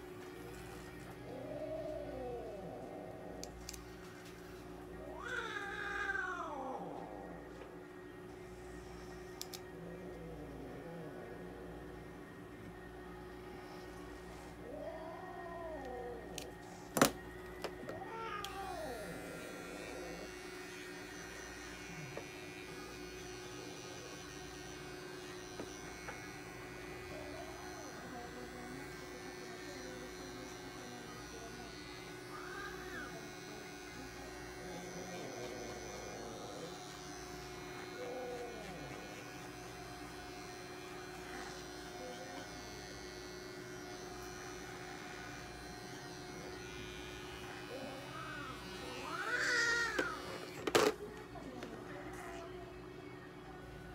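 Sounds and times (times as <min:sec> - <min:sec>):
cat meowing: 0:05.1 - 0:07.1
pet trimmer buzzing: 0:18.4 - 0:51.0.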